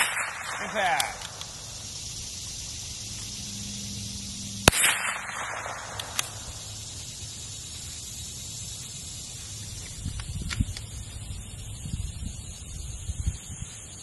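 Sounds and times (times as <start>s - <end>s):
rifle shot with echo: 0.0s - 1.6s, 4.6s - 6.7s.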